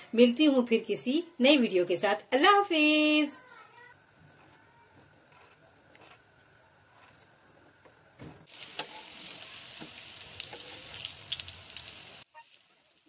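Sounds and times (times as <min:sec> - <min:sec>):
food sizzling in oil: 0:08.5 - 0:13.0.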